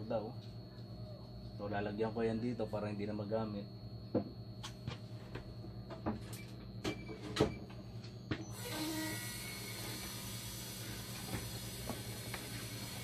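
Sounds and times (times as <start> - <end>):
steady low hum: 0.0 - 13.0
steady hiss: 8.6 - 13.0.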